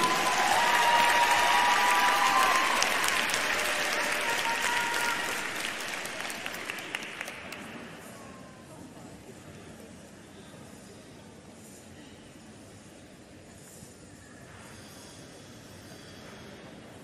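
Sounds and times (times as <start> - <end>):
crowd applauding: 0.0 - 8.0.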